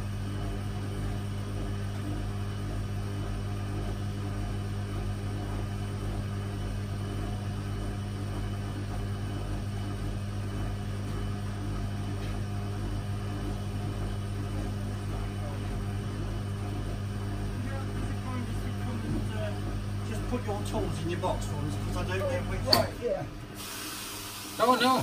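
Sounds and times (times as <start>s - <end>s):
washing machine spinning: 0.0s - 25.0s.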